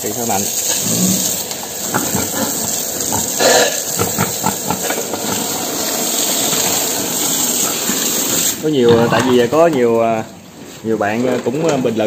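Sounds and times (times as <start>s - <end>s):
water spraying: 0.0s - 8.7s.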